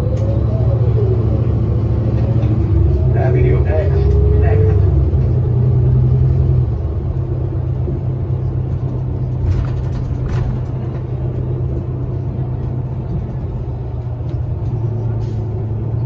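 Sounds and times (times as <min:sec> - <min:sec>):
bus engine and road rumble: 0:00.0 - 0:16.0.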